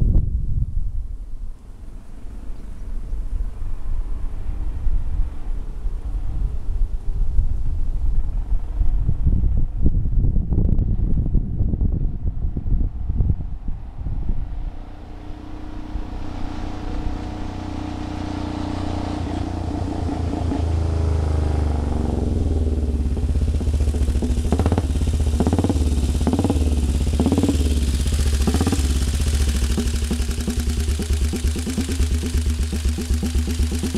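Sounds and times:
motorcycle engine approaching: 12.2s - 33.9s
engine sharp bursts: 17.0s - 33.9s
motorcycle engine idling: 19.2s - 33.9s.

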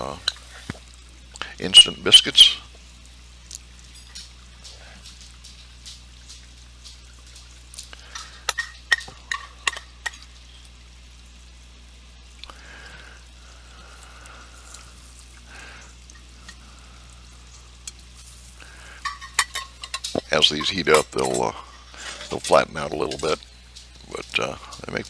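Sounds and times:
dough sizzling: 0.0s - 25.0s.

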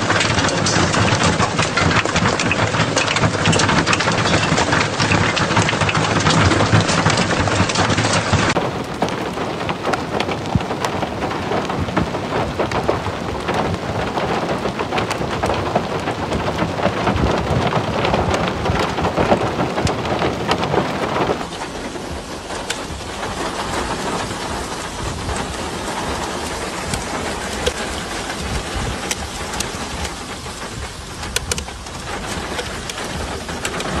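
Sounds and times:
hail and rain pelting gravel: 0.0s - 34.0s
rain rushing with sharp taps: 0.0s - 34.0s.

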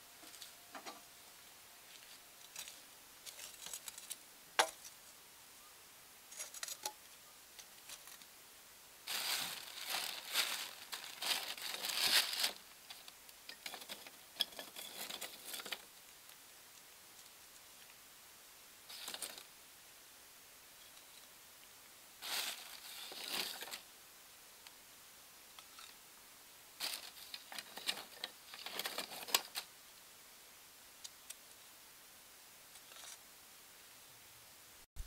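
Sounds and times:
tongs scraping charcoal: 2.4s - 5.0s, 6.3s - 8.3s, 12.5s - 15.9s, 32.7s - 33.2s
paper crinkling: 9.1s - 15.9s, 22.2s - 23.8s, 26.8s - 29.7s.

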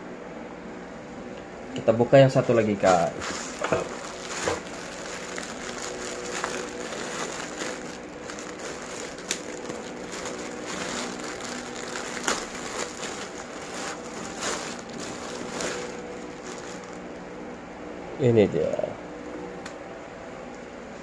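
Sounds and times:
plastic bag crinkling: 2.6s - 17.2s.

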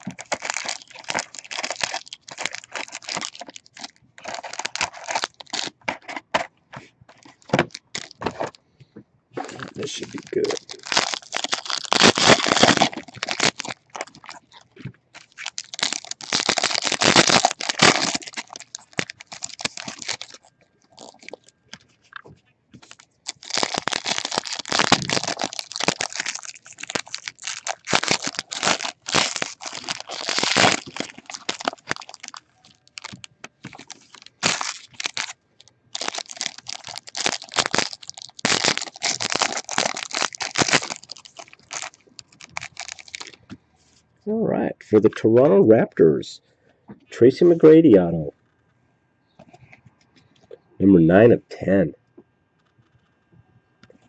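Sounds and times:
foil wrappers crinkling: 0.0s - 6.5s, 7.1s - 8.6s, 9.4s - 43.5s.

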